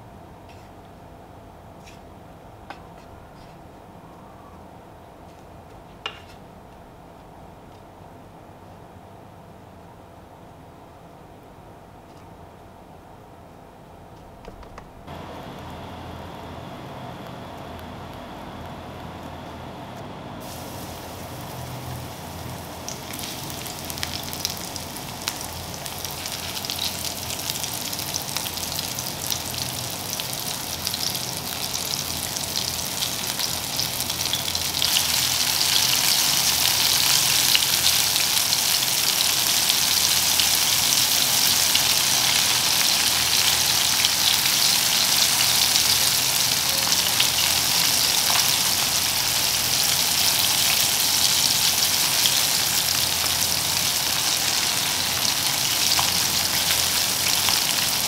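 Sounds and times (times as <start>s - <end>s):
chicken sizzling in oil: 20.4s - 58.0s.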